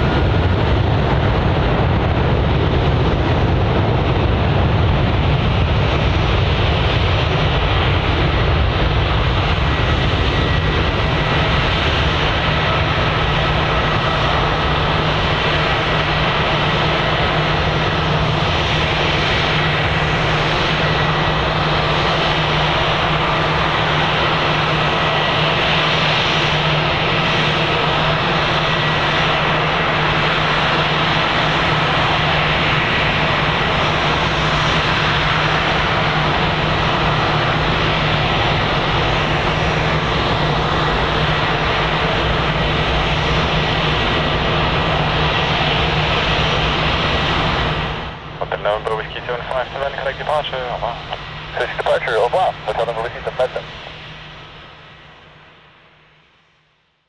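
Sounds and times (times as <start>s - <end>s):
jet engines at takeoff thrust: 0.0s - 57.0s.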